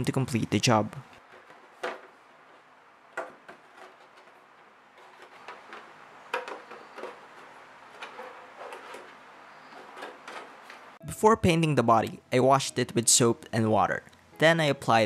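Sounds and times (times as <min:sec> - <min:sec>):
plastic shell clicking and crackling: 0:01.2 - 0:10.9.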